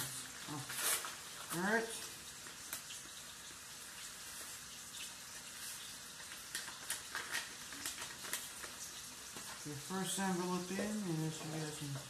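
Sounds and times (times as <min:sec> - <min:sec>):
faint steady hiss: 0:00.0 - 0:12.0
paper crinkling and tapping: 0:05.5 - 0:09.6.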